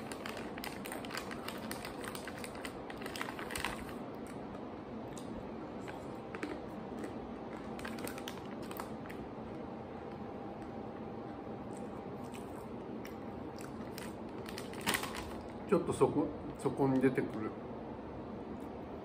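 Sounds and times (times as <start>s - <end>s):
crunchy snack being chewed: 11.7s - 15.5s.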